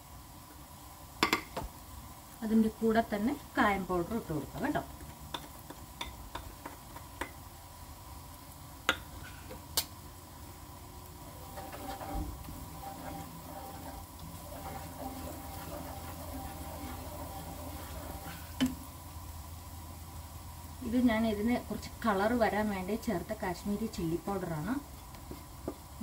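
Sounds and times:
light sizzle of frying: 0:00.0 - 0:26.0
spatula scraping a wok: 0:11.2 - 0:19.0.

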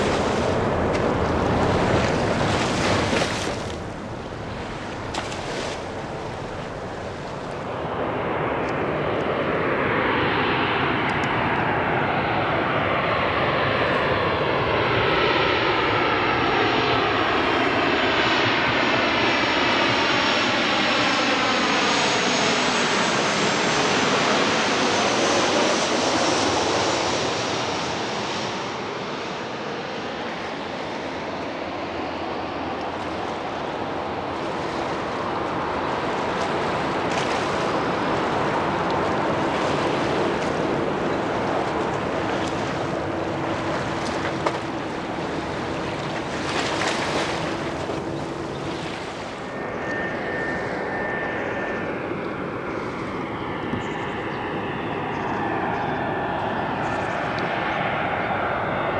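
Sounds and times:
jet airliner passing overhead: 0:00.0 - 0:58.9.

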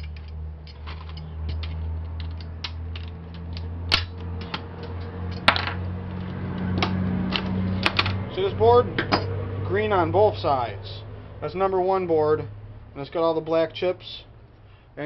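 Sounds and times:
pliers prying metal and plastic: 0:00.0 - 0:05.5
small metal and plastic clicks: 0:00.0 - 0:05.5
sharp plastic snaps: 0:01.5 - 0:05.5.

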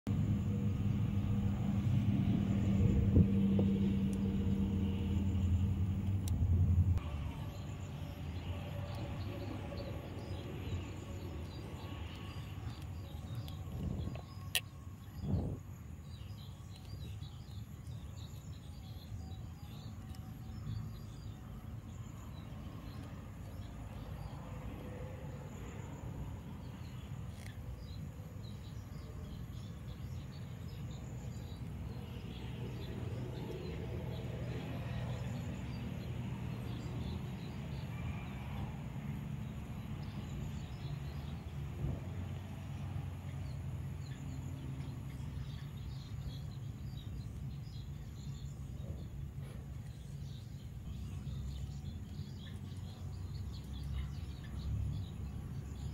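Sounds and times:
low rumble: 0:00.1 - 0:14.4.

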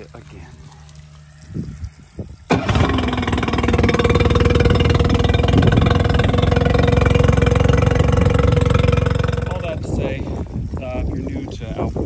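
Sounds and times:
outboard motor starting and idling: 0:02.5 - 0:10.0.

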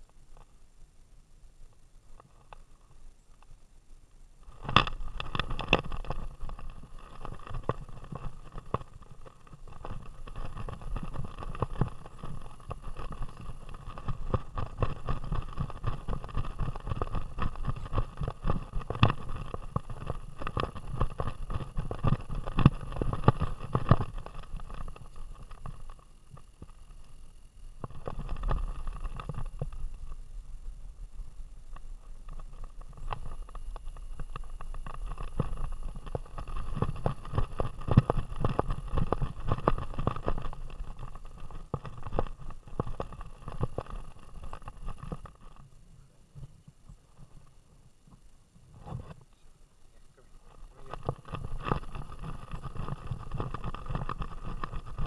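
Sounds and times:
camera knocking and rattling: 0:04.4 - 0:26.8, 0:27.8 - 0:30.2, 0:31.7 - 0:45.6, 0:50.4 - 0:55.0.

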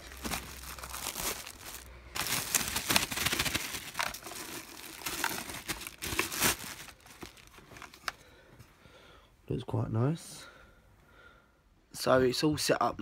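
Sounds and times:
plastic packaging crinkling: 0:00.0 - 0:08.2.

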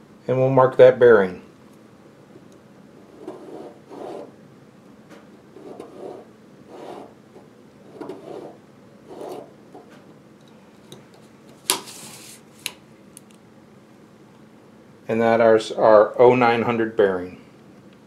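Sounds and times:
pencil rubbing on paper: 0:03.0 - 0:04.3, 0:05.6 - 0:07.1, 0:07.9 - 0:09.5.

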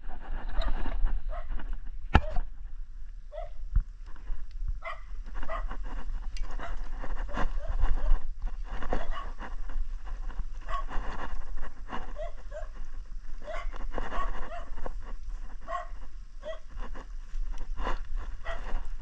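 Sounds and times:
dog barking: 0:03.3 - 0:03.6, 0:04.8 - 0:05.7, 0:09.0 - 0:09.4, 0:10.7 - 0:10.9, 0:12.2 - 0:12.7, 0:13.4 - 0:14.7, 0:15.7 - 0:16.7, 0:18.4 - 0:18.7.

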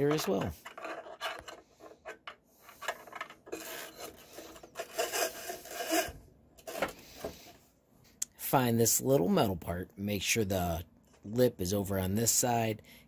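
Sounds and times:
cable scraping through hole: 0:03.5 - 0:07.0.

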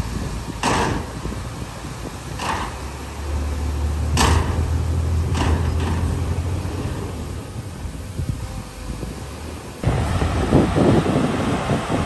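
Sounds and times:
bulldozer diesel engine droning: 0:00.0 - 0:12.0.

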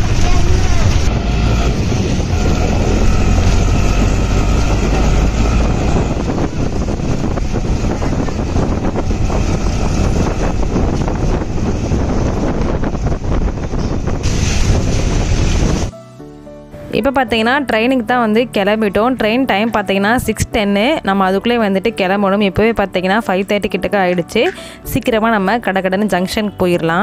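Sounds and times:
heavy rain: 0:00.0 - 0:15.9
wind rumbling on microphone: 0:00.0 - 0:16.0.

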